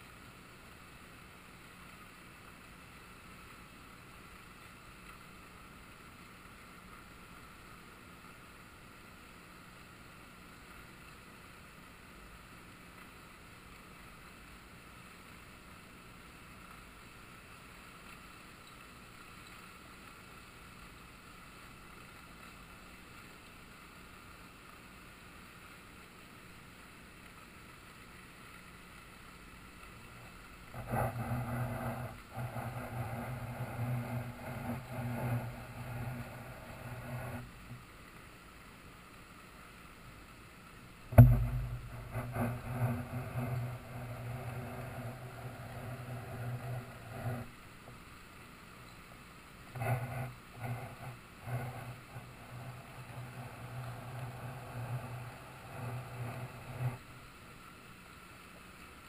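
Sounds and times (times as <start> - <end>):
river current rushing: 29.4 - 39.1, 40.8 - 57.3.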